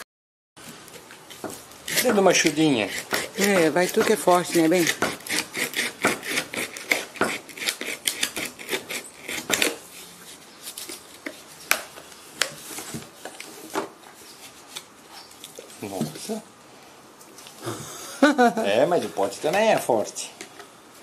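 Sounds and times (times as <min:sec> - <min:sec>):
knife sawing through plastic: 0:01.9 - 0:10.4.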